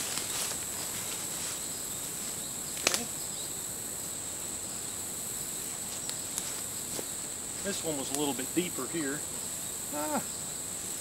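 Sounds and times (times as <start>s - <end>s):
insects droning: 0.0s - 11.0s
sharp snap: 2.8s - 3.1s.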